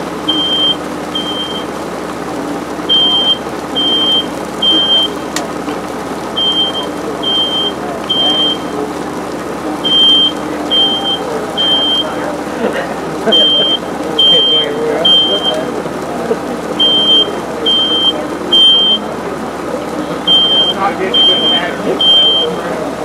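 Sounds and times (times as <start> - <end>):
smoke alarm beeping: 0.3 - 1.7, 2.9 - 5.3, 6.4 - 8.8, 9.8 - 12.2, 13.3 - 15.8, 16.8 - 19.1, 20.3 - 22.6.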